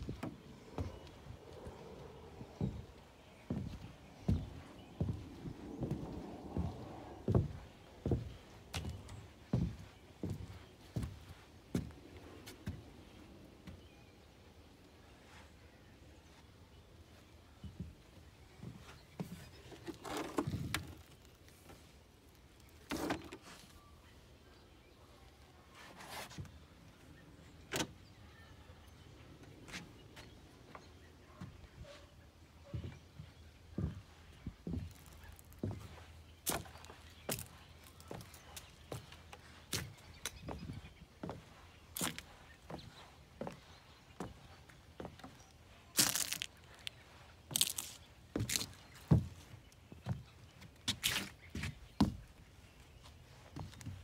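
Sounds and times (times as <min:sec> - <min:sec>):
footsteps on wooden boards: 0:00.0 - 0:13.9, 0:17.1 - 0:21.9, 0:32.6 - 0:54.0
dry leaves crunching: 0:45.9 - 0:48.8.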